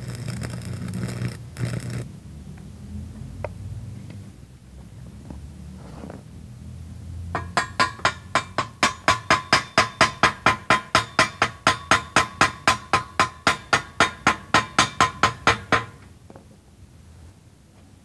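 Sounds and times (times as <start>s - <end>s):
chipping hammer striking steel: 7.4s - 16.0s.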